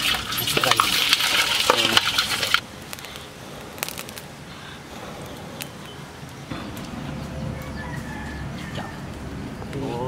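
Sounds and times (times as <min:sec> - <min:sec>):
wood fire crackling: 0:00.0 - 0:07.7
fire pops: 0:02.8 - 0:04.3.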